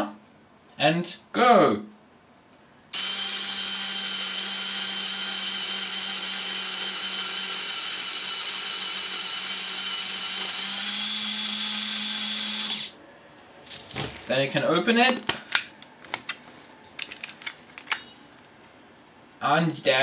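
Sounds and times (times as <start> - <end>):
camera motor whirring: 2.9 - 12.9.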